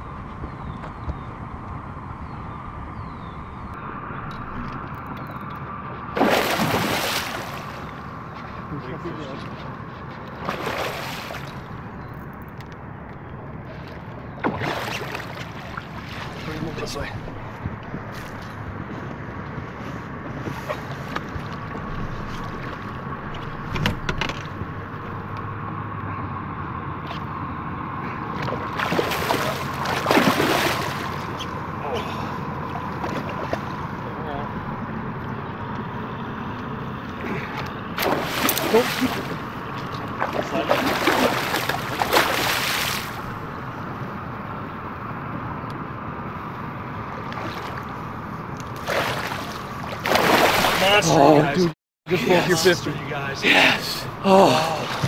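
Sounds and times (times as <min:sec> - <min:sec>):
wind: 0:00.0 - 0:55.0
water lapping against hull: 0:05.9 - 0:12.1, 0:13.6 - 0:19.0, 0:19.7 - 0:25.3, 0:28.0 - 0:34.4, 0:37.0 - 0:43.6, 0:46.9 - 0:52.8, 0:53.5 - 0:55.0
fish thrashing and splashing: 0:06.1 - 0:08.7, 0:10.0 - 0:11.8, 0:13.6 - 0:16.6, 0:28.3 - 0:31.6, 0:37.4 - 0:43.4, 0:48.6 - 0:51.0.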